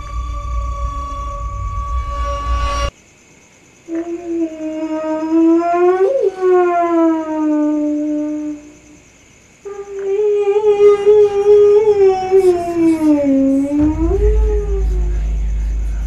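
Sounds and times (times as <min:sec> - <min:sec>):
eerie wavering wailing tones: 0:00.0 - 0:02.9, 0:09.7 - 0:16.0.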